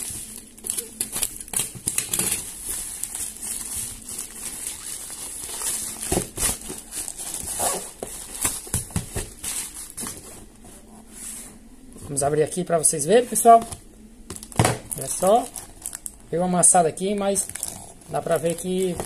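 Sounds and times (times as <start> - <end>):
plastic bag crinkling and tearing: 0.0 - 10.2, 14.3 - 16.3, 17.0 - 19.0.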